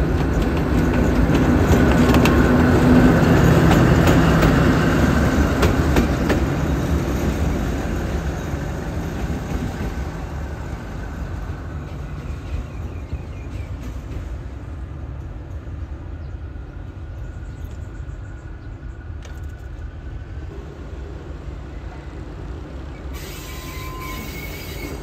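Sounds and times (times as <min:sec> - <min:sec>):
wheels clicking over rail joints: 0:00.0 - 0:10.2
locomotive engine drone: 0:00.0 - 0:25.0.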